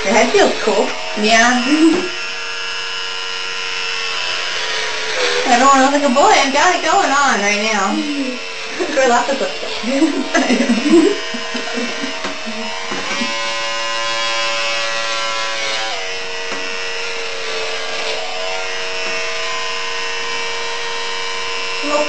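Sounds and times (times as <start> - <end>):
electric hair clippers buzzing: 0.0 - 22.0.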